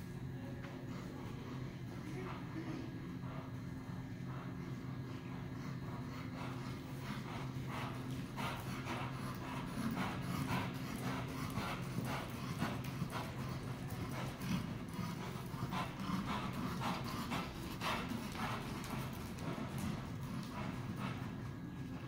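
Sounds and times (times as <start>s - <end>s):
steady low hum: 0.0s - 22.0s
horse hooves on sand: 6.4s - 22.0s.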